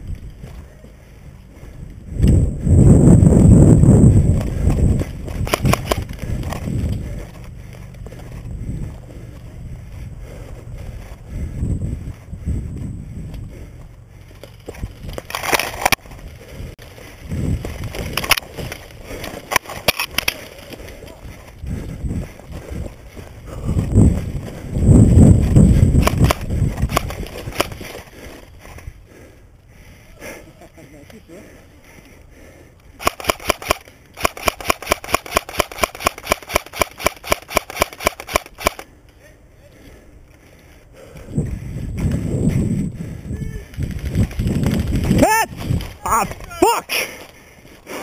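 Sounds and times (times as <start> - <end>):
twigs crunching and rustling: 14.2 - 21.6, 43.6 - 46.6
twigs snapping: 17.6 - 20.9.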